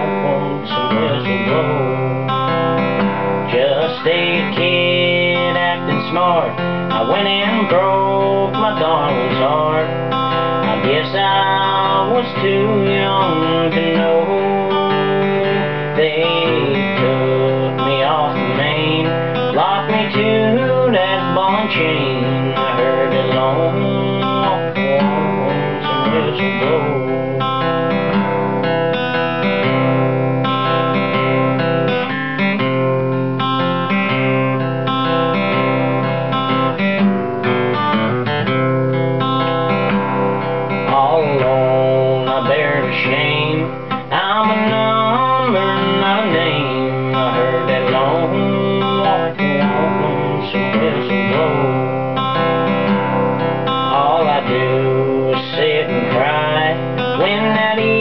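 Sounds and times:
acoustic guitar picking: 0.0s - 58.0s.

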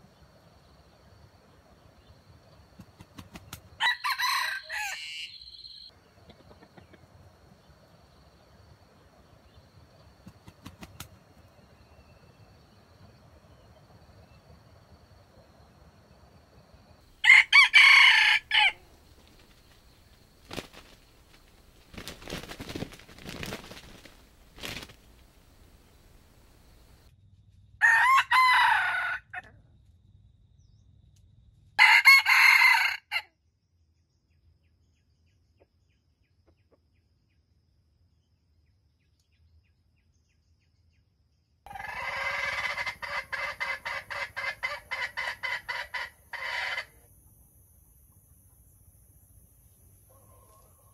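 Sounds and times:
rooster crowing: 3.8s - 5.9s, 17.2s - 18.9s, 27.8s - 29.5s, 31.8s - 33.2s, 41.7s - 47.0s, 50.1s - 50.9s
hen clucking rapidly: 6.2s - 7.2s, 41.7s - 47.0s.

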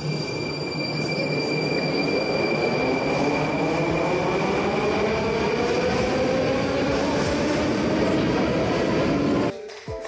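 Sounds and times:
high-pitched squeal: 0.0s - 5.2s
train rumble: 0.0s - 9.5s.

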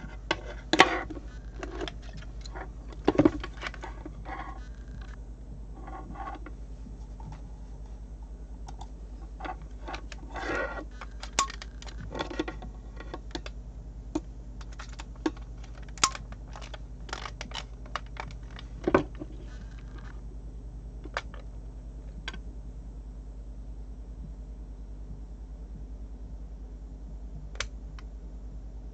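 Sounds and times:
plastic plugs clicking and rattling: 0.0s - 5.2s, 8.7s - 13.6s, 14.2s - 20.1s, 21.0s - 21.5s
steady low hum: 0.0s - 28.9s.

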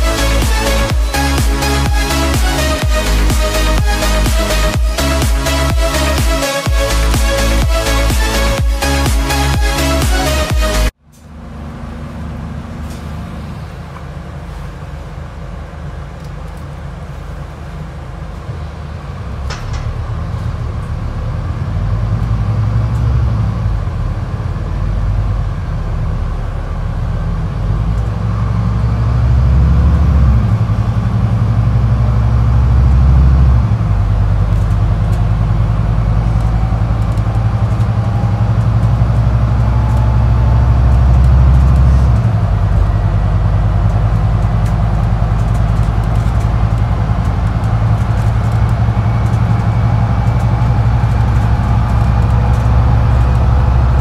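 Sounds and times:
bus diesel engine accelerating: 0.0s - 54.0s
faint rising whine: 11.1s - 54.0s.

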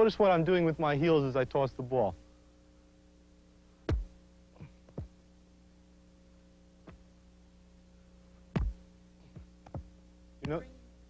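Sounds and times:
steady low hum: 0.0s - 11.0s
ball thumping against chest: 3.8s - 5.2s, 6.8s - 7.0s, 8.5s - 10.6s
ball knocking on ground: 3.9s - 4.1s, 8.5s - 8.8s.

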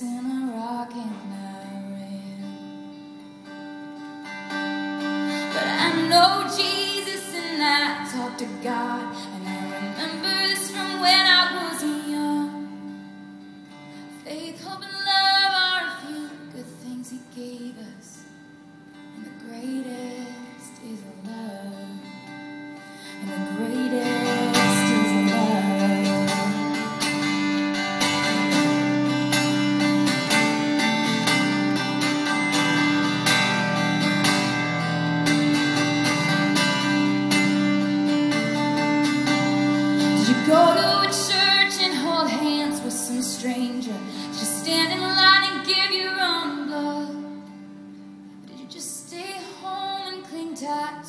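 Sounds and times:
woman singing: 0.0s - 2.9s, 5.2s - 18.4s, 19.0s - 22.4s, 23.0s - 27.6s, 39.3s - 47.6s, 48.4s - 51.0s
acoustic guitar strumming: 0.0s - 51.0s.

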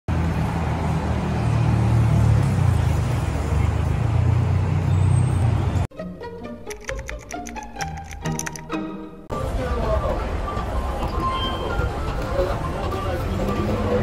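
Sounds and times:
road traffic rumble: 0.1s - 5.9s, 9.3s - 14.0s
music: 5.9s - 14.0s.

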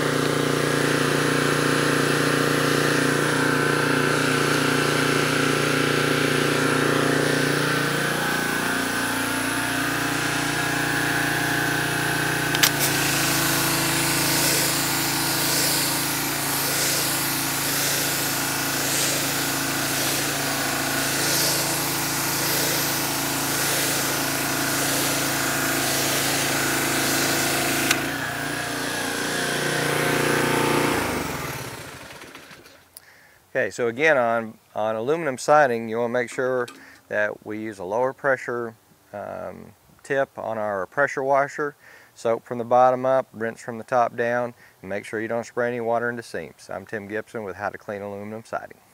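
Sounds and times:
pressure washer running: 0.0s - 32.8s, 36.2s - 37.1s
water jet hissing on siding: 0.0s - 33.3s, 36.2s - 37.3s
trigger clicks: 12.5s - 13.0s, 36.3s - 37.0s.

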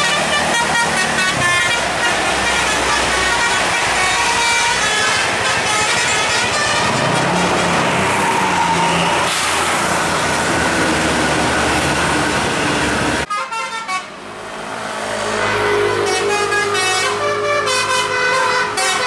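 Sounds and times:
bus horn playing a tune: 0.0s - 8.0s, 13.2s - 14.2s, 15.5s - 19.0s
bus horn blaring: 0.0s - 10.1s, 12.6s - 14.2s, 15.5s - 19.0s
bus passing: 0.0s - 19.0s.

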